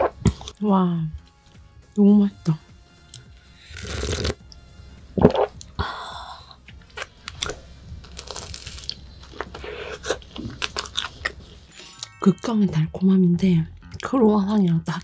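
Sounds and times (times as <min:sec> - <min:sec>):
slurp from a glass: 0:03.6 - 0:04.4
crunching pastry: 0:06.7 - 0:11.7.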